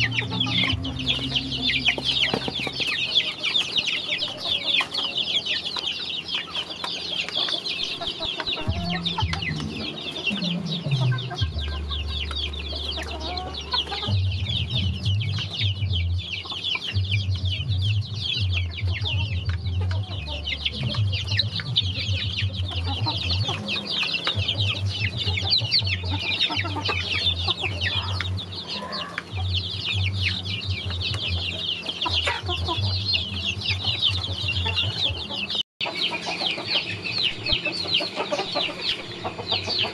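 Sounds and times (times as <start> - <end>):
low rumble: 0.0 - 3.4, 8.6 - 28.4
chicks peeping and chirping: 0.0 - 39.9.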